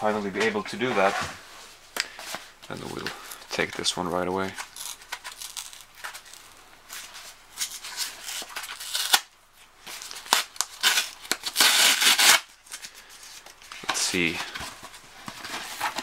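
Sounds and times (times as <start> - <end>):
cardboard scraping and rustling: 0.4 - 1.4, 13.8 - 16.0
cardboard tearing: 7.6 - 9.3, 9.9 - 12.5.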